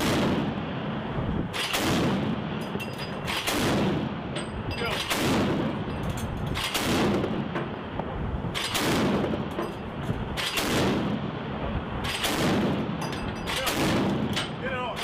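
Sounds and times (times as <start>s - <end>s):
chain gun firing with echo: 1.5s - 2.2s, 3.0s - 4.0s, 4.8s - 7.4s, 8.5s - 9.7s, 10.3s - 11.1s, 12.0s - 14.6s.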